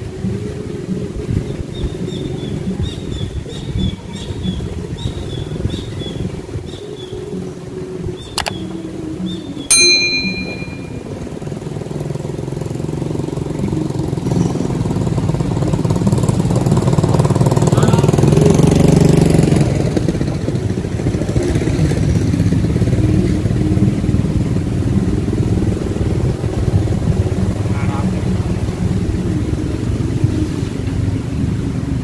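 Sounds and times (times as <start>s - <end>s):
vehicle engine running: 11.4s - 32.0s.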